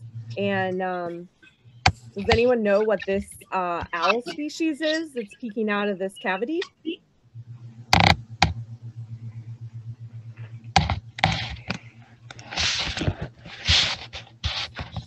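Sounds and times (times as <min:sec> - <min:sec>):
low electrical hum: 0:00.0 - 0:15.0
clicks: 0:06.2 - 0:15.0.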